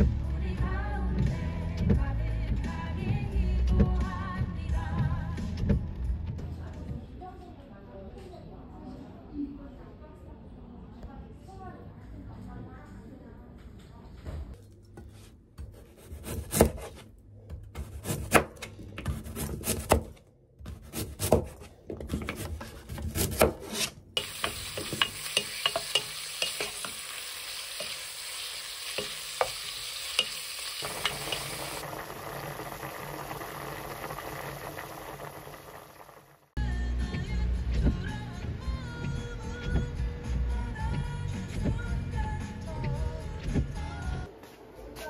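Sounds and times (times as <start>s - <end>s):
knife chopping on cutting board: 15.0s - 26.9s
wooden spoon stirring: 20.6s - 31.8s
meat sizzling in a pot: 24.2s - 36.5s
soup bubbling at the boil: 30.7s - 36.5s.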